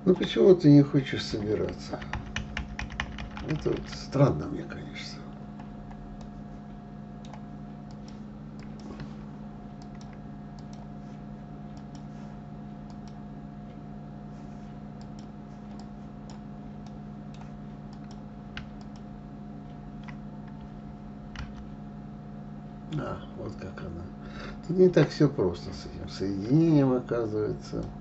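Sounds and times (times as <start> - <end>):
low electrical hum: 0.0 - 28.0
keyboard and mouse clicks: 9.8 - 10.9, 15.0 - 19.1, 19.7 - 20.7.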